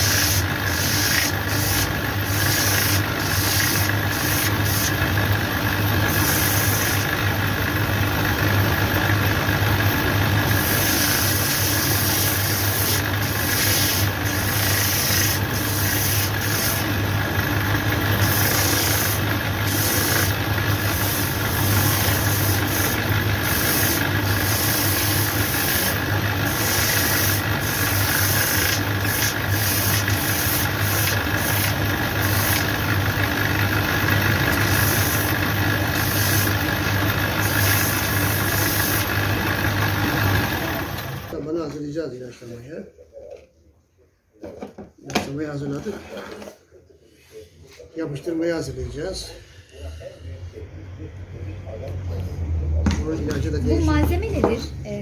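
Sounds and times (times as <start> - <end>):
leather sole sanding rasp: 0.0 - 5.3, 5.9 - 7.3, 10.4 - 40.8
machine motor hum: 0.0 - 41.4.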